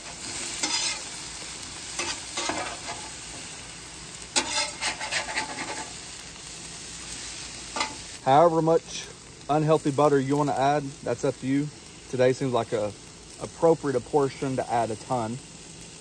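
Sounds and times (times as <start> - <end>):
metal spatula scraping griddle: 0.0 - 1.2, 1.9 - 3.4, 4.3 - 6.0
potatoes sizzling in oil: 0.0 - 16.0.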